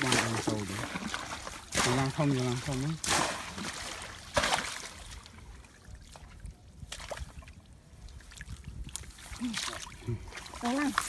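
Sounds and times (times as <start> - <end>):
sharp splash: 0.0 - 5.3, 9.0 - 11.0.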